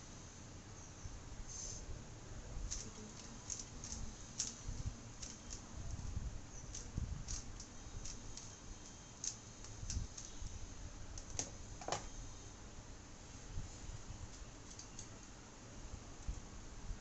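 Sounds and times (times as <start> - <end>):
puzzle cube clicking: 2.7 - 4.6, 6.7 - 8.5.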